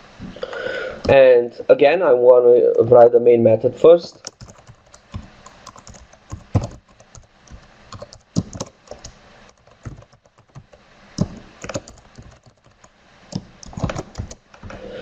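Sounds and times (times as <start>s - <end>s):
computer keyboard typing: 4.1s - 14.9s.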